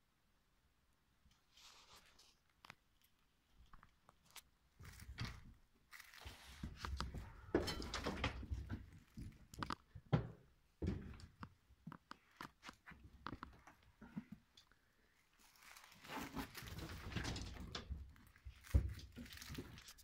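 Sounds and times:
hay and straw rustling: 5.9s - 7.4s, 15.3s - 17.2s
thuds and knocks in wooden pen: 6.5s - 11.4s, 16.2s - 19.8s.

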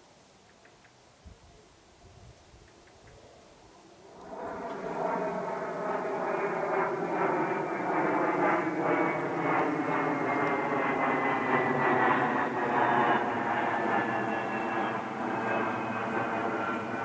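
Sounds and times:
passing engine drone: 4.0s - 17.0s.

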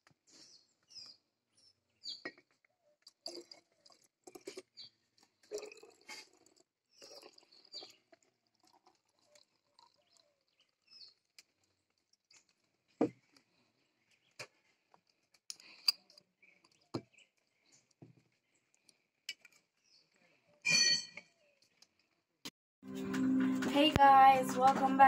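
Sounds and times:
liquid pouring into glass bottle: 3.0s - 11.5s.

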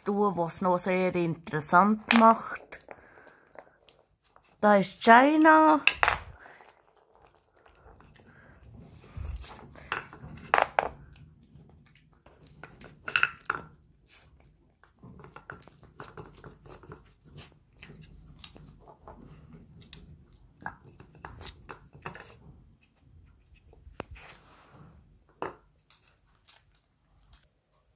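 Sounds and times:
wooden cylinders knocking and scraping: 1.7s - 4.8s, 5.4s - 13.9s, 14.8s - 24.2s.

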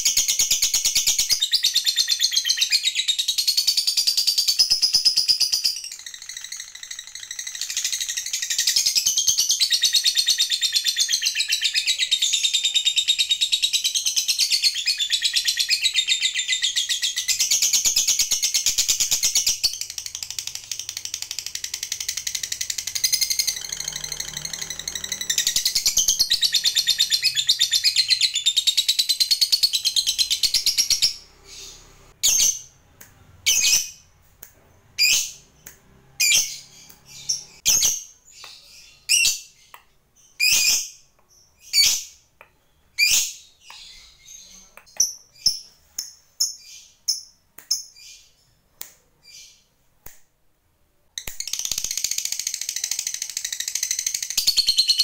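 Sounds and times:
bird chattering song: 0.0s - 32.8s, 51.3s - 55.0s
bird chirps: 0.0s - 49.8s, 51.2s - 55.0s.

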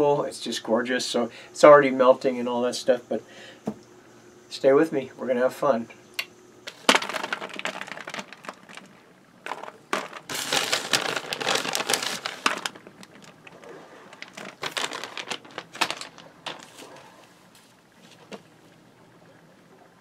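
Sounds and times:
foil pan crinkling: 6.7s - 18.4s.

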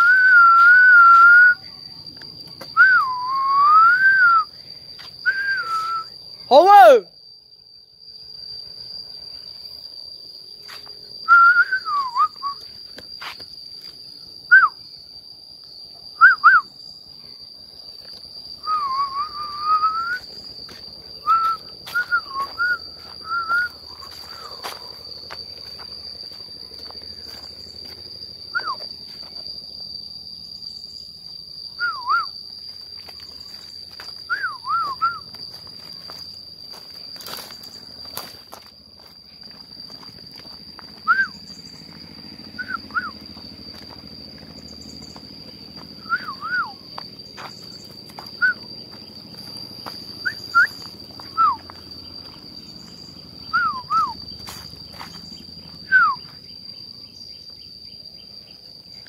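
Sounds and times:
high insect drone: 0.0s - 59.0s
short whistled notes: 5.2s - 6.1s.

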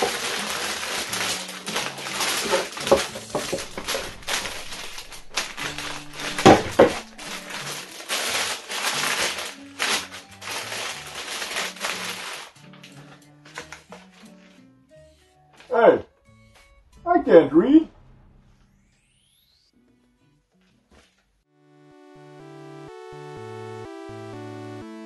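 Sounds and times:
plastic bags crinkling: 0.0s - 14.0s
background music with low notes: 0.0s - 25.0s.

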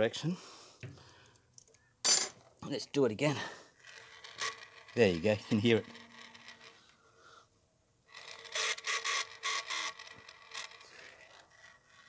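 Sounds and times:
motor bearings scraping and grinding: 3.8s - 7.0s, 8.1s - 12.0s.

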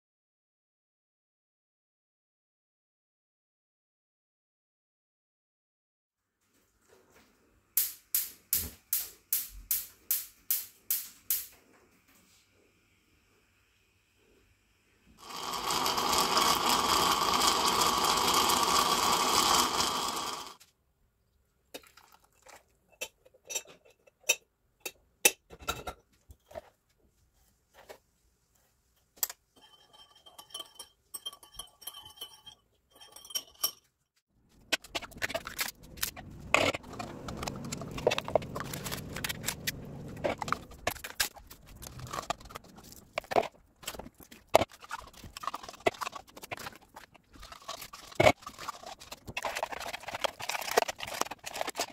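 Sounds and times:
stovetop coffee pot gurgling: 15.2s - 20.6s, 44.6s - 51.9s
spoon scraping in bowl: 29.6s - 33.9s, 34.7s - 51.9s
utensils clinking on ceramic bowl: 29.6s - 34.0s.

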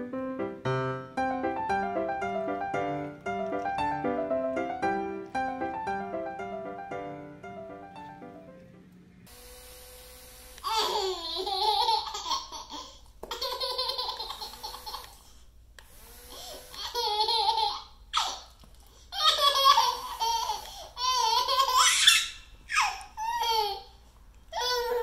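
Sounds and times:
baby laughing: 10.6s - 15.4s, 16.4s - 25.0s.

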